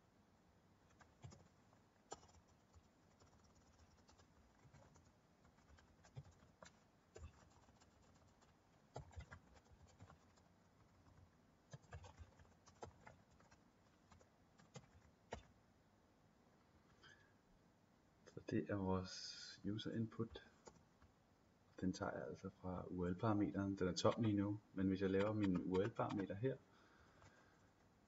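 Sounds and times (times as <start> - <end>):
faint keyboard typing: 0.8 - 15.6, 20.2 - 21.2, 23.6 - 28.0.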